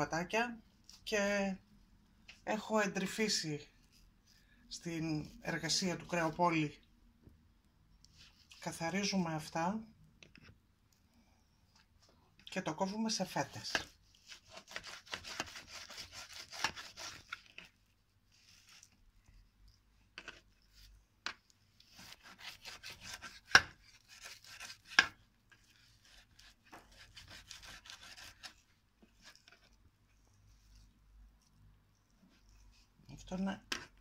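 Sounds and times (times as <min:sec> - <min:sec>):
knife sawing through meat: 0:14.4 - 0:17.3, 0:22.0 - 0:25.0, 0:26.0 - 0:28.5.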